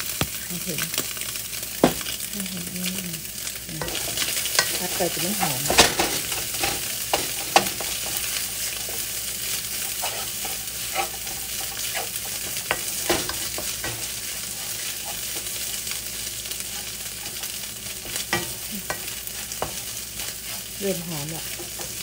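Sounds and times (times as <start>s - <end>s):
food sizzling in a wok: 0.0s - 22.0s
spatula stirring and scraping: 3.8s - 22.0s
spatula tapping a pan: 5.4s - 9.0s, 10.4s - 14.1s, 17.2s - 20.6s, 21.5s - 22.0s.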